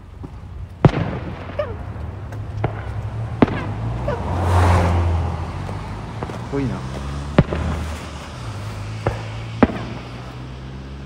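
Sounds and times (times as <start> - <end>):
small fireworks pops: 0.0 - 4.0, 5.6 - 10.5
fireworks bangs: 0.0 - 11.0
low hum: 0.0 - 11.0
rushing noise: 1.2 - 11.0.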